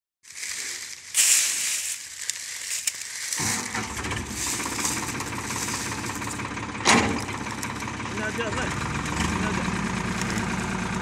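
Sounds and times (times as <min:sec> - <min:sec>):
crackling hiss: 0:00.3 - 0:03.8
engine running: 0:00.3 - 0:11.0.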